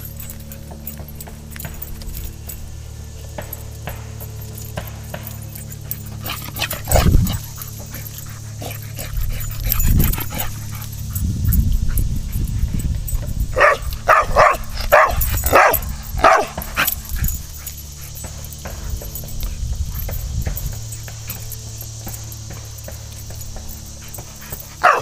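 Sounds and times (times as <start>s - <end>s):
dog barking: 13.5s - 17.0s, 23.6s - 25.0s.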